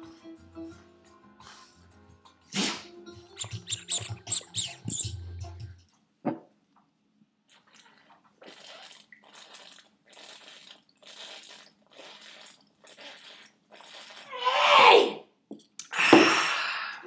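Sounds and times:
person gulping from a bottle: 7.5s - 14.4s
loud voiced exhale: 15.9s - 17.0s.

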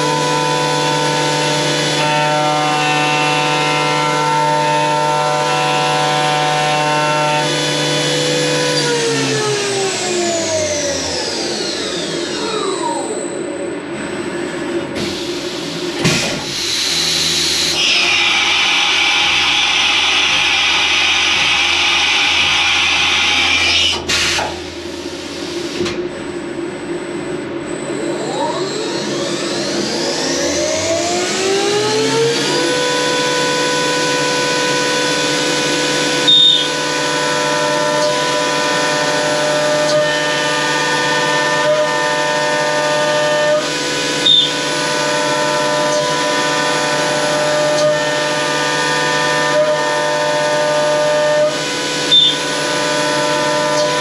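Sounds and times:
milling machine spindle whine: 0.0s - 54.0s
pneumatic hiss: 52.1s - 52.4s.

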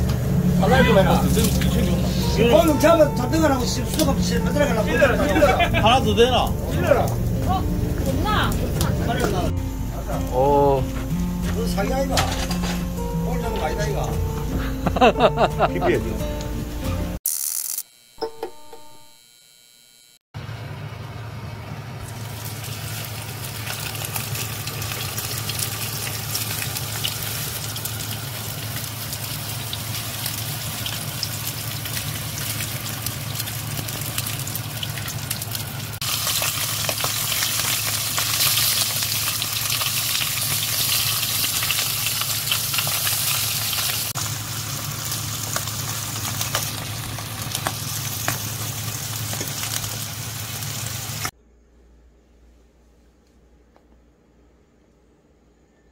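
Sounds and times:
low steady hum: 0.0s - 15.0s
fish sizzling in oil: 22.0s - 51.3s.

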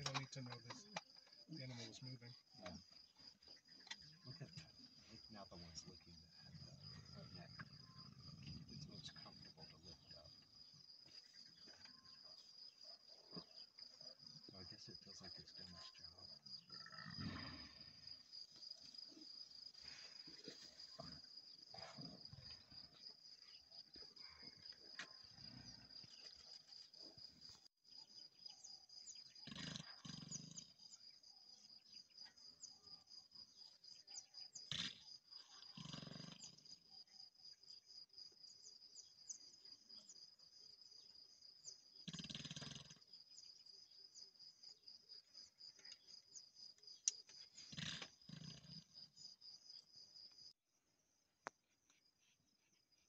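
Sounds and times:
insects trilling: 0.0s - 50.6s
lionesses growling: 1.6s - 27.6s, 29.2s - 31.0s, 34.5s - 36.9s, 41.8s - 43.5s, 47.4s - 49.2s.

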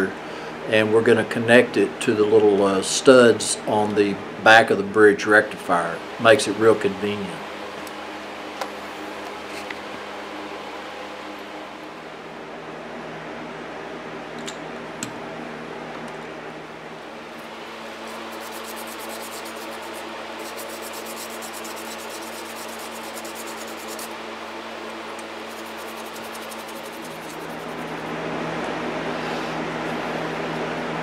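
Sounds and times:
fan running: 0.0s - 31.0s
hands rubbing wire windings: 17.3s - 24.2s, 24.9s - 28.1s.

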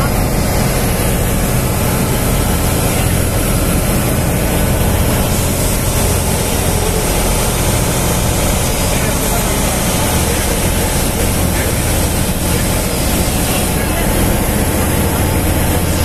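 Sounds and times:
boat engine droning: 0.0s - 16.0s
water rushing: 0.0s - 16.0s
wind: 0.0s - 16.0s.

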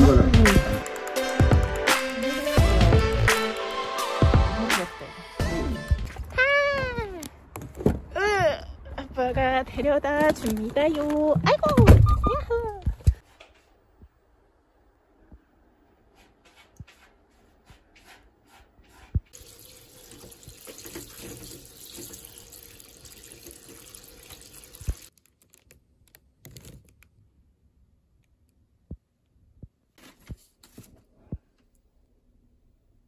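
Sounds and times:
tap water running into bowl: 19.4s - 25.1s.

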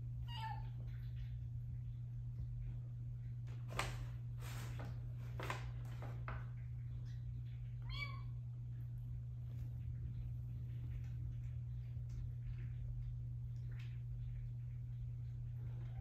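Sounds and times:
cat meowing: 0.2s - 0.8s.

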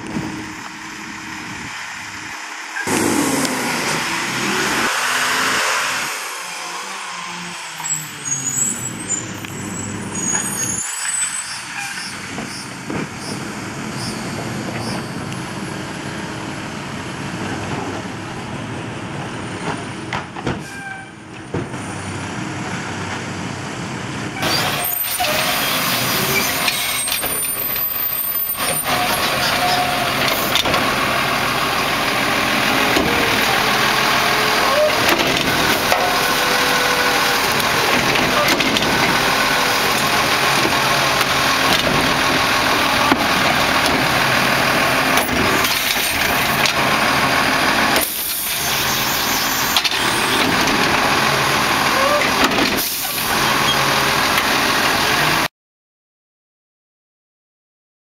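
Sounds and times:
garbage truck diesel engine: 0.0s - 55.5s
air brake hiss: 52.8s - 53.3s.

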